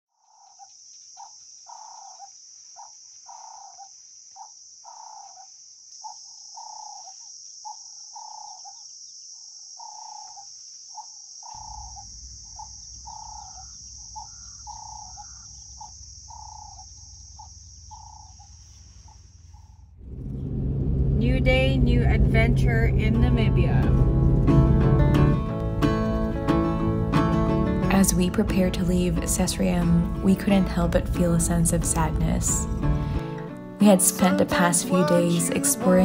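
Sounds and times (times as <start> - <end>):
high-pitched insect trill: 0.2 - 19.7
low steady rumble: 11.5 - 34.2.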